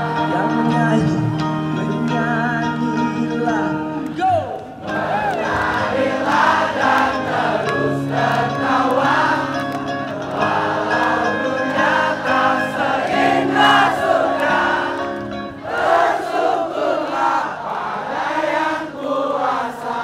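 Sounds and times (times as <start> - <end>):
live band playing: 0.0 - 4.2, 4.8 - 16.0
crowd singing along: 0.0 - 20.0.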